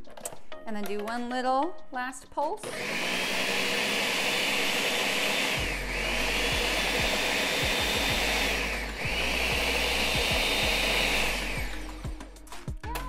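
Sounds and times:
blender motor running: 2.6s - 12.2s.

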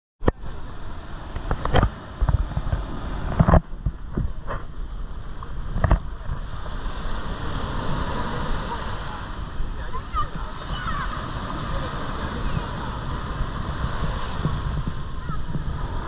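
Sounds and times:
surf washing over sand: 0.2s - 16.0s
wave breaking close by: 0.2s - 16.0s
wind buffeting microphone: 0.2s - 16.0s.

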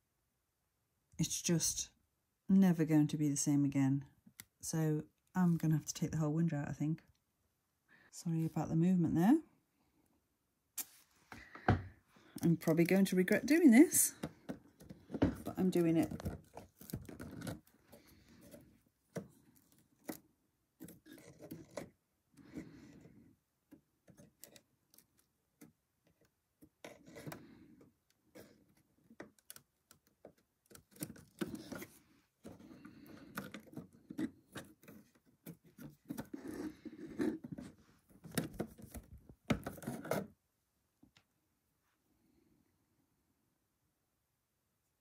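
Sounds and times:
metal scraping and rubbing on wood: 30.8s - 39.0s.

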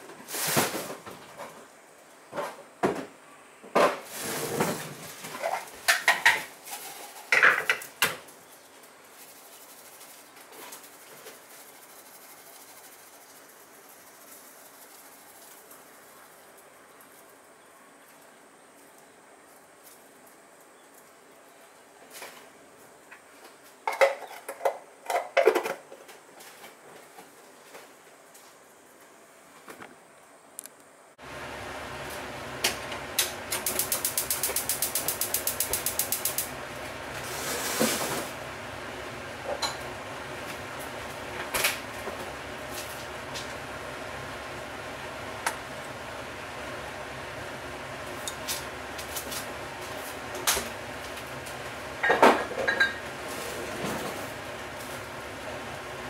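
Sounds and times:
dishes and utensils clattering: 52.0s - 53.0s
kitchenware clinks and knocks: 52.0s - 53.0s.

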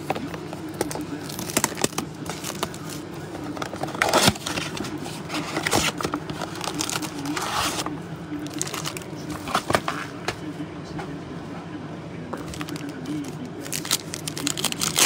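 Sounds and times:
card wrappers crinkling: 0.0s - 7.8s, 8.4s - 10.0s, 12.4s - 15.0s
steady low hum: 0.0s - 15.0s.

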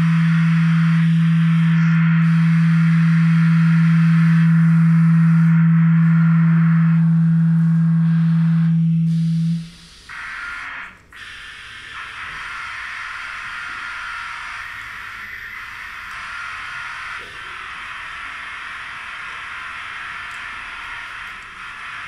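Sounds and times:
steady low electronic tone: 0.0s - 22.0s.

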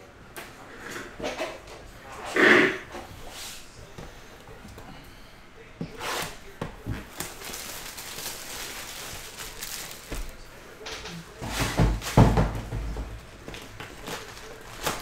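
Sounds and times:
plastic shrink wrap crinkling and tearing: 7.0s - 10.4s, 13.5s - 15.0s.

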